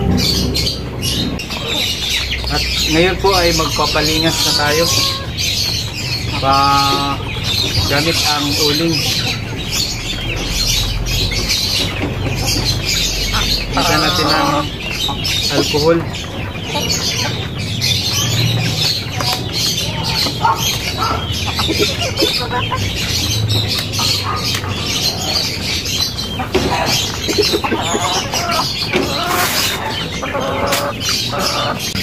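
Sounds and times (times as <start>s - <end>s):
chickens clucking and squawking: 0.0s - 32.0s
small birds chirping: 0.0s - 32.0s.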